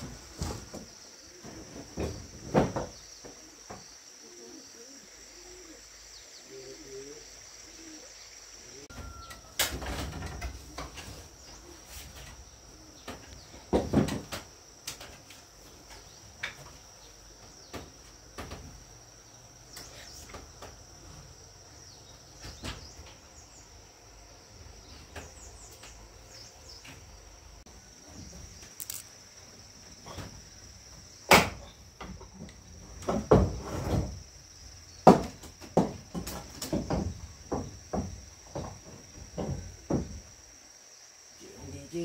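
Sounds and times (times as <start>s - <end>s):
objects knocking and clunking: 0.0s - 3.9s, 13.0s - 18.8s, 31.4s - 34.2s, 35.0s - 40.3s
high-pitched insect drone: 27.6s - 30.8s.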